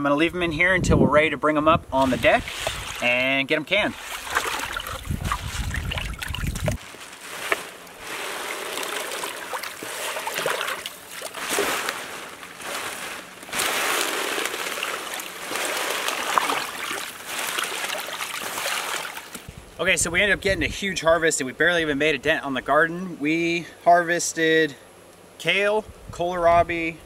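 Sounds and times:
water sloshing in a tub: 0:02.0 - 0:19.5.

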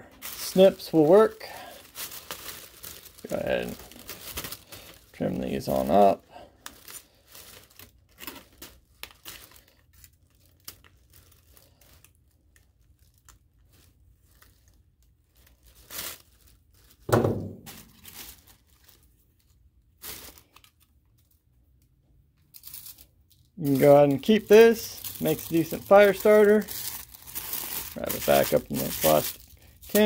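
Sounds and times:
tissue paper rustling: 0:00.1 - 0:20.8, 0:23.6 - 0:30.0
crinkling thump: 0:17.0 - 0:18.5.

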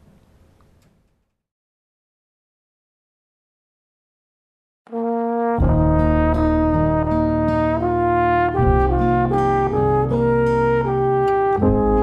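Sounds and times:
brass instruments playing chords: 0:04.9 - 0:12.0
bass line: 0:05.2 - 0:12.0.

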